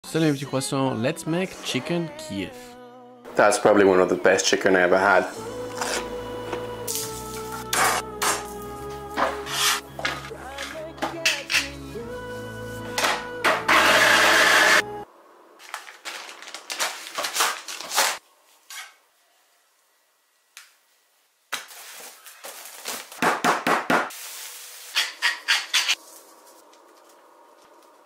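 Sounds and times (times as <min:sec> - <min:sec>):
food processor whirring: 0:13.7 - 0:14.8.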